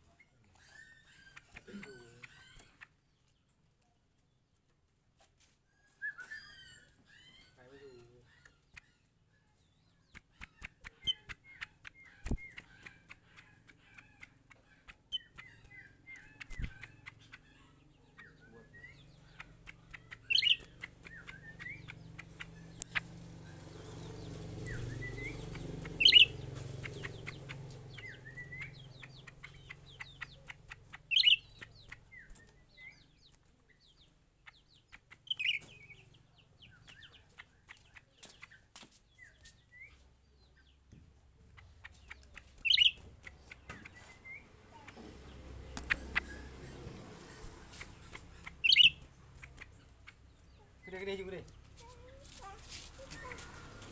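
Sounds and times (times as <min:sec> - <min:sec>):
songbird chirping and twittering: 0:00.0 - 0:53.9
sharp short bird calls: 0:20.0 - 0:21.9, 0:24.6 - 0:30.5, 0:31.1 - 0:32.3, 0:42.6 - 0:43.0, 0:47.4 - 0:49.6
light ticks of bird hopping: 0:44.8 - 0:50.2.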